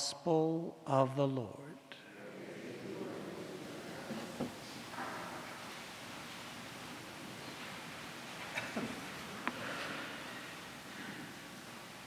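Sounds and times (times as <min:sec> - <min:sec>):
steady hiss: 0:01.8 - 0:12.0.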